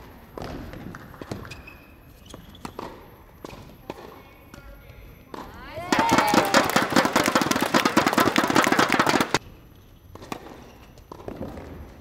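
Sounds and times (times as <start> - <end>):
group clapping: 5.8 - 9.4.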